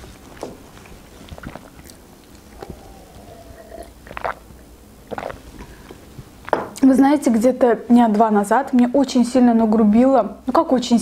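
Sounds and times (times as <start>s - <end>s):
person swallowing: 1.4s - 6.8s.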